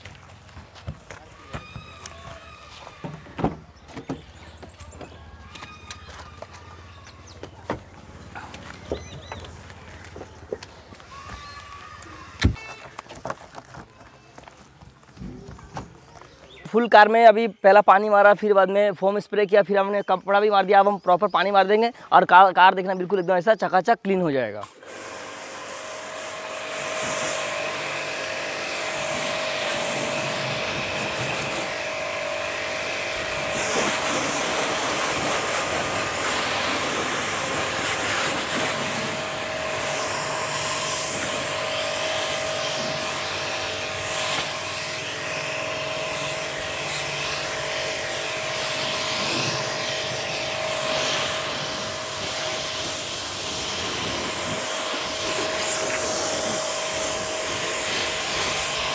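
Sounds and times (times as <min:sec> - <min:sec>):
pressure washer motor whine: 0:24.6 - 0:58.9
water spray hissing on car: 0:25.2 - 0:31.8, 0:32.4 - 0:45.2, 0:46.0 - 0:58.9.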